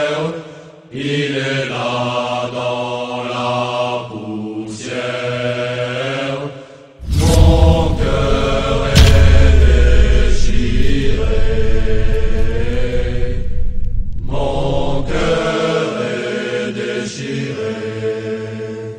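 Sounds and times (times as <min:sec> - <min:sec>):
chant-like voices holding notes: 0:00.0 - 0:18.9
deep rumble: 0:07.0 - 0:15.5.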